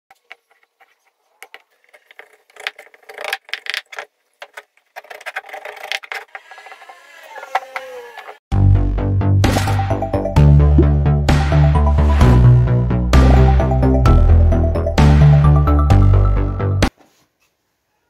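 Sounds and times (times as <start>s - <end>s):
wood scraping and squeaking: 0.1s - 8.4s
loud music: 8.5s - 16.9s.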